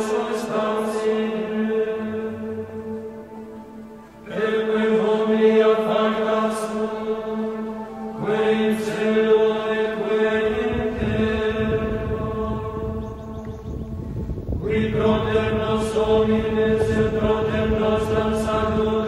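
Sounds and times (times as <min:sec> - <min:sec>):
chanting voice: 0:00.0 - 0:19.0
held drone note: 0:01.5 - 0:11.1.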